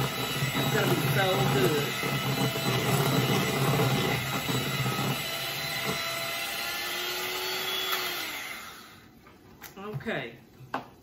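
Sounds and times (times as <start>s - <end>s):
electric hand mixer whipping icing: 0.0s - 9.1s.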